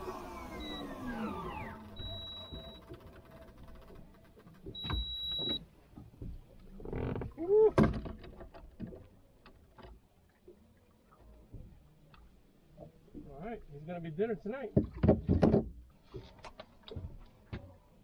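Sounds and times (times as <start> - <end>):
short high beeps: 1.6 - 2.9, 4.8 - 5.6
tackle knocking against boat: 14.8 - 15.8.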